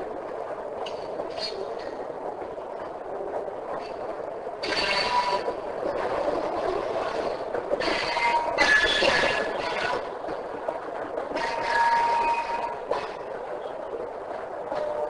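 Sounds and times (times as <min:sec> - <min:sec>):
train rumbling on rails: 0:00.0 - 0:15.0.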